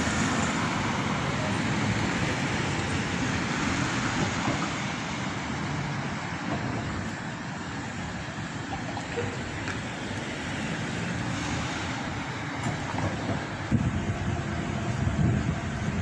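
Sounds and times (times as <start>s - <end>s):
cars passing on a road: 0.0s - 16.0s.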